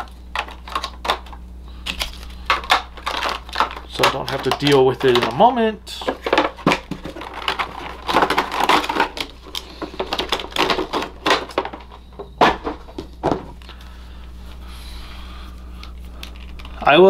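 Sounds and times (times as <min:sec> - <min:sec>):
plastic packaging crackling: 0:00.0 - 0:13.9
low steady hum: 0:00.0 - 0:17.0.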